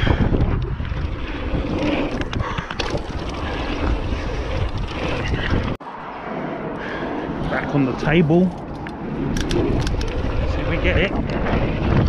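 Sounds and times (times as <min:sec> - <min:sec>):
wind buffeting microphone: 0:00.0 - 0:12.0
bike knocks and rattles: 0:01.7 - 0:05.8.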